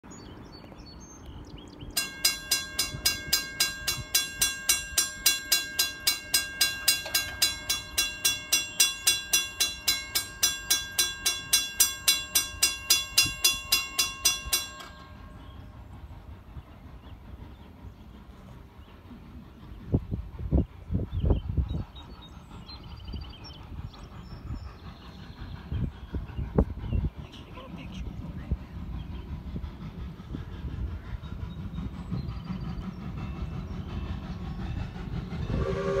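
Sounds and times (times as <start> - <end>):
railroad crossing bell ringing: 1.8 - 15.8, 35.4 - 36.0.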